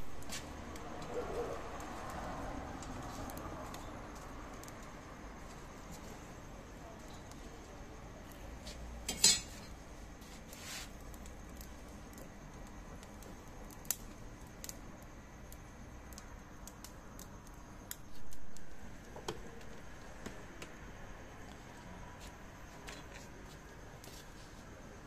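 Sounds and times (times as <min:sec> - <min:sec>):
burning charcoal crackling: 0:00.0 - 0:25.0
metal grill tongs clanking: 0:09.0 - 0:09.7.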